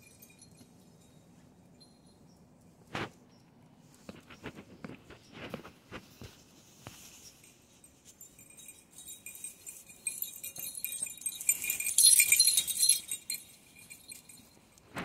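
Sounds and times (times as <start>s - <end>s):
dog collar jingling: 0.0s - 2.4s, 7.1s - 14.9s.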